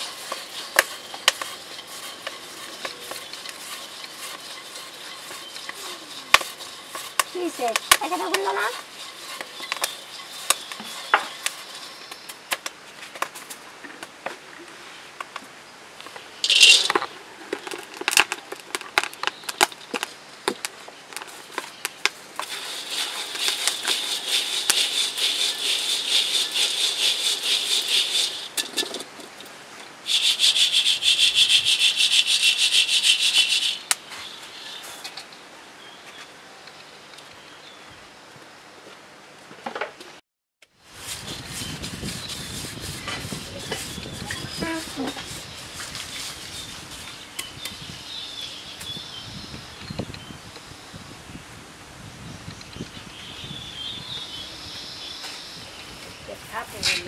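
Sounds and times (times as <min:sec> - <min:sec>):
rough rasping rubbing: 0:00.0 - 0:12.3, 0:21.2 - 0:29.0, 0:30.1 - 0:35.1, 0:40.9 - 0:47.3.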